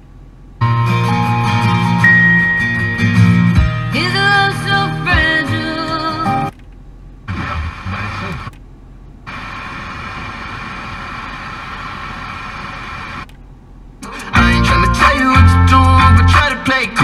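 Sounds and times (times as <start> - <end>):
music from radio: 7.3 - 8.5, 14.0 - 17.0
noisy radio reception: 7.3 - 8.5, 9.3 - 13.3
radio static hiss: 7.3 - 8.6, 9.2 - 13.3.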